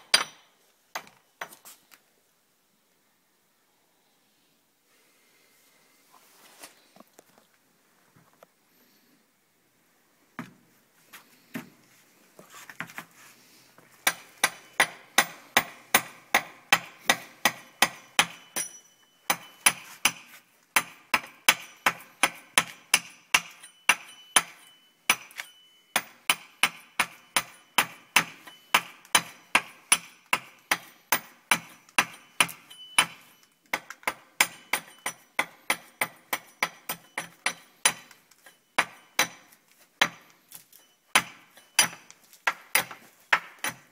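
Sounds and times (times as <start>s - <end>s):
hatchet chopping wood: 14.0s - 18.7s, 19.3s - 38.2s, 38.8s - 40.4s, 41.1s - 43.9s.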